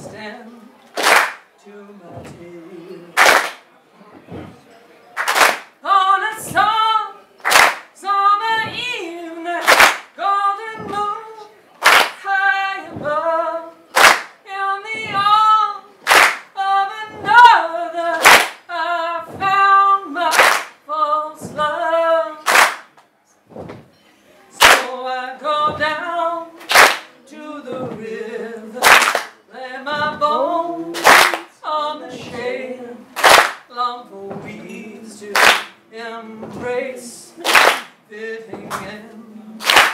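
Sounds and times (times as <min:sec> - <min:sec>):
woman singing a cappella: 0:00.0 - 0:00.8, 0:01.6 - 0:03.2, 0:05.8 - 0:07.2, 0:08.0 - 0:22.5, 0:24.5 - 0:39.9
sharp hand clap: 0:01.0 - 0:01.5, 0:03.2 - 0:03.6, 0:05.2 - 0:05.8, 0:07.4 - 0:08.0, 0:09.6 - 0:10.2, 0:11.8 - 0:12.2, 0:13.9 - 0:14.4, 0:16.0 - 0:16.6, 0:18.2 - 0:18.7, 0:20.3 - 0:20.8, 0:22.4 - 0:23.0, 0:24.6 - 0:24.9, 0:26.6 - 0:27.2, 0:28.8 - 0:29.4, 0:31.0 - 0:31.5, 0:33.2 - 0:33.7, 0:35.3 - 0:35.8, 0:37.4 - 0:38.0, 0:39.6 - 0:39.9.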